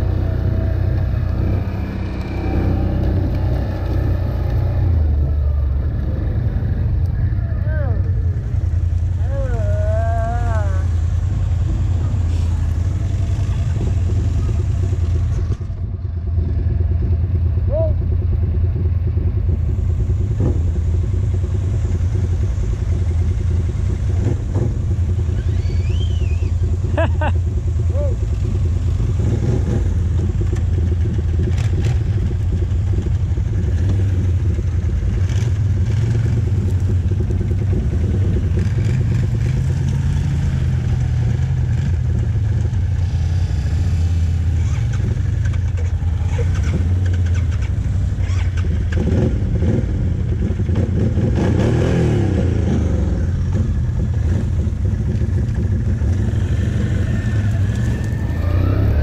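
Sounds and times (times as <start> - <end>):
quad bike engines droning: 0.0 - 59.0
short high squeaks: 25.3 - 26.5.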